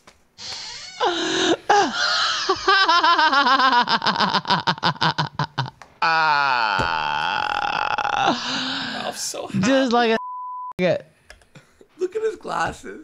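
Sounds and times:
man laughing hard: 1.7s - 6.4s
long drawn-out voiced sound: 6.0s - 9.2s.

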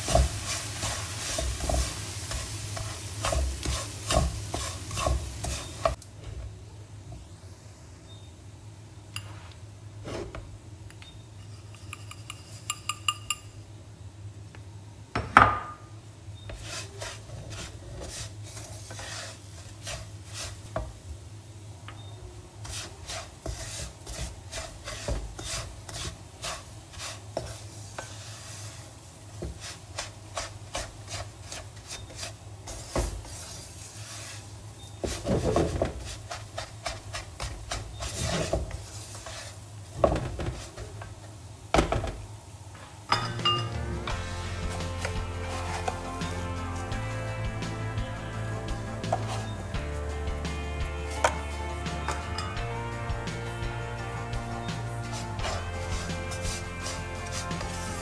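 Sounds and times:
spatula scraping semolina in pan: 0.0s - 6.0s, 11.4s - 13.0s, 16.4s - 20.8s, 22.6s - 39.7s, 43.3s - 52.6s, 53.4s - 58.0s
high ringing pings: 43.1s - 43.8s.

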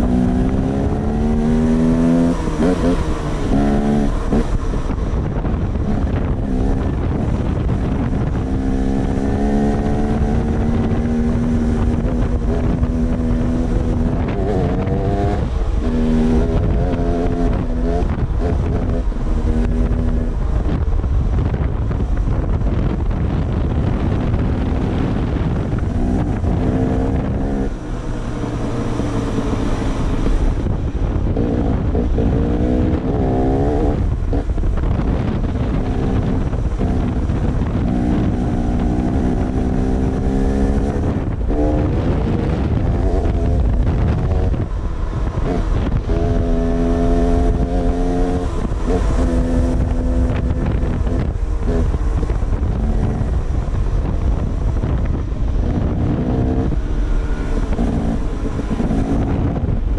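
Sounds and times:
wind buffeting microphone: 0.0s - 59.9s
dirt bike engine revving: 35.7s - 53.4s.

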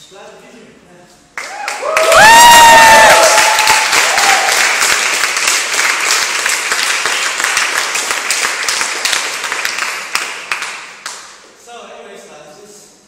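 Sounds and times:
people cheering: 1.4s - 5.2s
crowd applauding: 1.4s - 11.2s.

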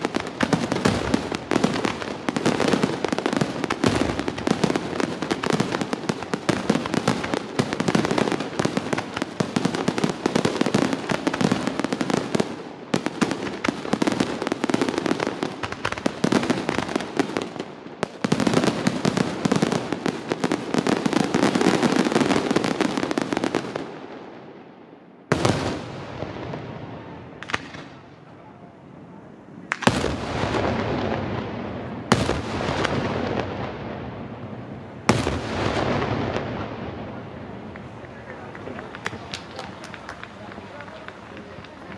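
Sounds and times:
heavy firework bangs with echo: 0.0s - 23.9s, 29.7s - 37.3s
fireworks bangs and crackling: 0.0s - 41.9s.

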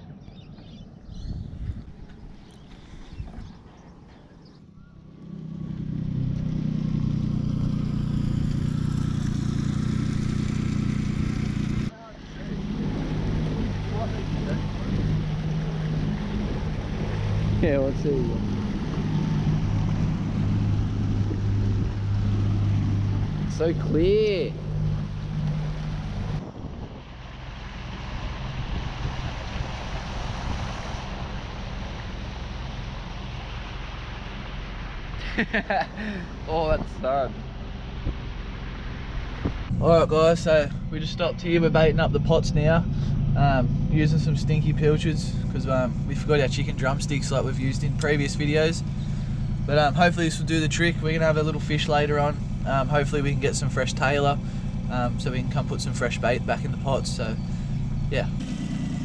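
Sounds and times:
wind on microphone: 0.4s - 4.6s, 12.5s - 24.7s, 25.9s - 27.3s
outboard motor idling: 7.2s - 26.4s, 39.7s - 59.0s
water rushing along hull: 11.9s - 26.4s, 27.0s - 35.2s.

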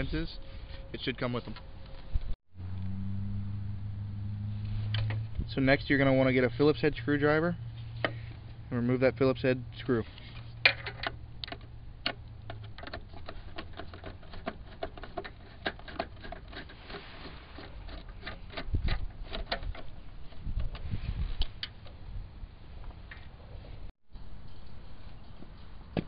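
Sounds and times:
low rumble: 2.1s - 8.9s.

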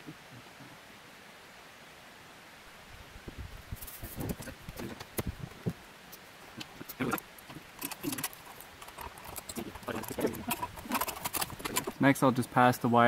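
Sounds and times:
wrench clicking on metal bolts: 7.4s - 12.0s.

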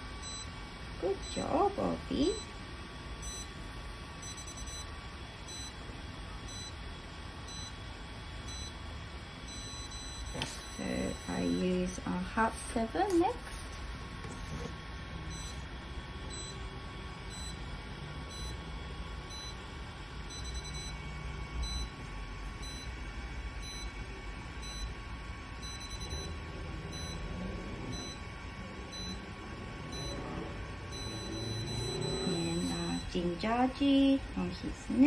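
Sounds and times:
short electronic beeps: 29.9s - 30.2s, 30.9s - 33.1s
faint steady tone: 30.9s - 33.3s.

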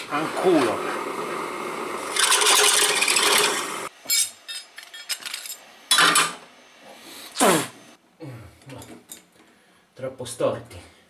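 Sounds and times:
drill press grinding through steel: 2.1s - 3.9s.

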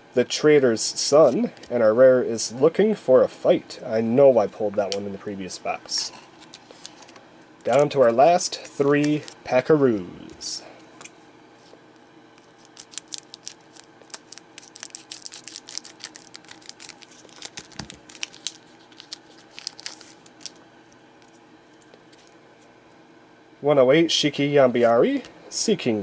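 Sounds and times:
wrapper crinkling: 12.4s - 20.6s
scissors snipping foil pack: 12.5s - 20.5s.

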